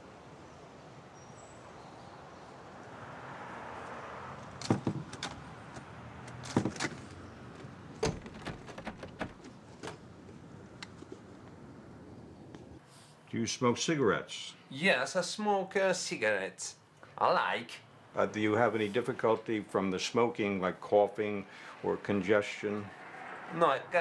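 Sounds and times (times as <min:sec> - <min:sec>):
sharp knocks and clicks: 0:04.6 - 0:07.0, 0:07.6 - 0:10.0.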